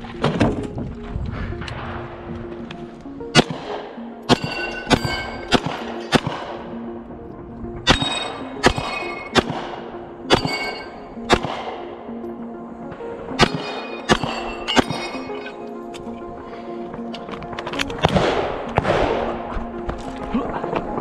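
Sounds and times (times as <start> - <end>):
background music with low notes: 0.0 - 21.0
steel targets ringing: 3.3 - 6.5, 7.8 - 11.5, 13.4 - 15.8
gunshots: 3.3 - 6.8, 7.8 - 11.9, 13.4 - 15.4, 18.0 - 19.6.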